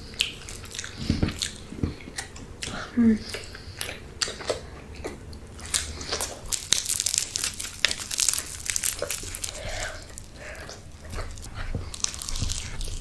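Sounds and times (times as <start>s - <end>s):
food packaging crinkling: 5.6s - 13.0s.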